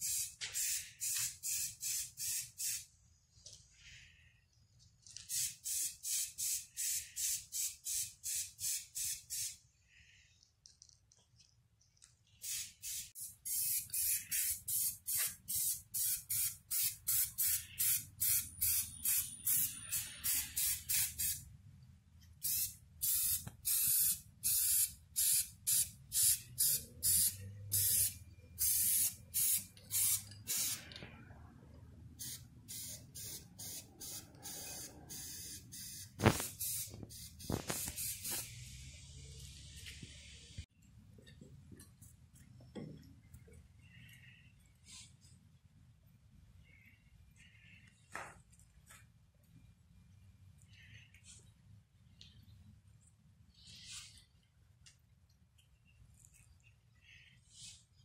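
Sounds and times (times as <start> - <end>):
spray paint can spraying: 0.0 - 2.9, 5.2 - 9.6, 12.4 - 21.4, 22.4 - 31.0, 32.2 - 38.7.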